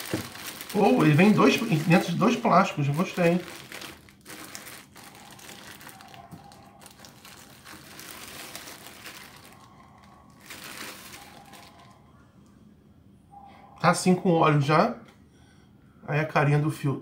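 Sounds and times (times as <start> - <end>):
plastic film crinkling: 0.0 - 12.0.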